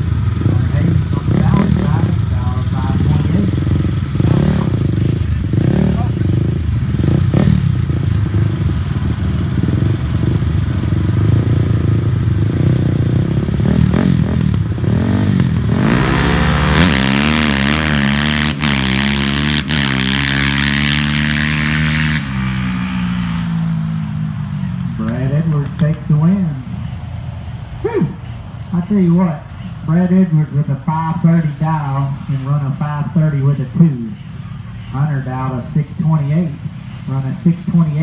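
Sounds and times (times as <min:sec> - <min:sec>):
engines revving hard: 0:00.0 - 0:27.0, 0:34.8 - 0:38.0
engines idling and blipping: 0:00.0 - 0:38.0.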